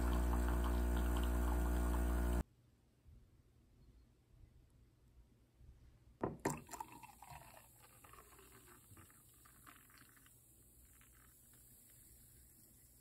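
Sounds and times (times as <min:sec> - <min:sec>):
liquid pouring into glass: 0:00.0 - 0:02.4, 0:06.3 - 0:13.0.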